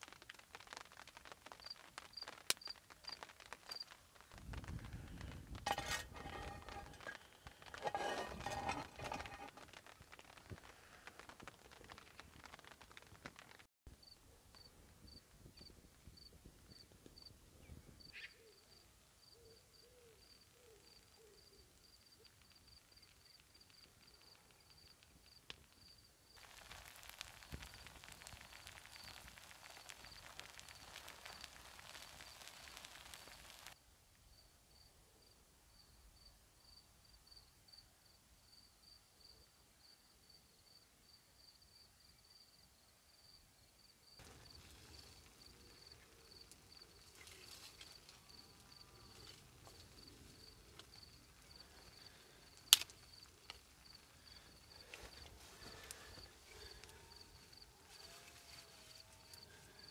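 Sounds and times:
steady hiss: 0.0s - 13.7s, 22.5s - 33.8s, 44.2s - 59.9s
crickets chirping: 18.5s - 33.7s, 34.3s - 59.9s.

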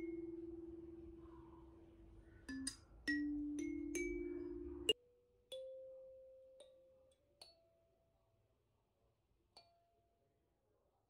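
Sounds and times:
kalimba notes plucked: 0.0s - 1.2s, 2.5s - 6.0s.

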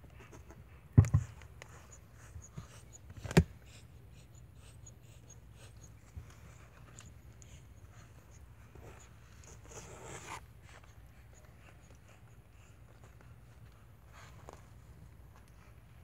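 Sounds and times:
faint rustling and rubbing: 5.4s - 16.0s.

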